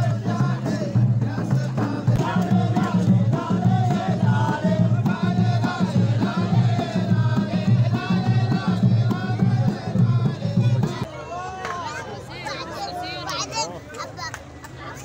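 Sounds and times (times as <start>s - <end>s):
men chanting in unison: 0.0s - 11.1s
steady pulsing beat: 0.0s - 11.1s.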